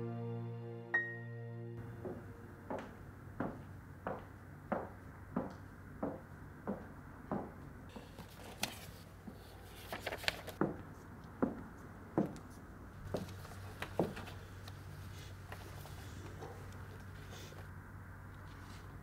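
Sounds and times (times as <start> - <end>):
low steady hum: 0.0 - 4.1
footsteps on hard floor: 2.0 - 7.5
paper rustling: 7.9 - 10.6.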